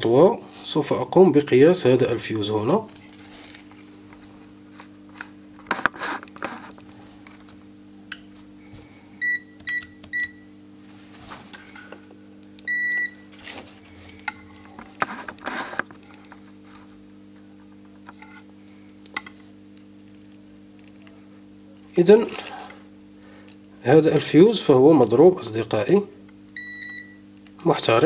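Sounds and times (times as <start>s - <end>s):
steady low hum: 0.0s - 28.0s
multimeter buzzer beeping: 9.2s - 10.4s, 12.6s - 13.3s, 26.6s - 27.2s.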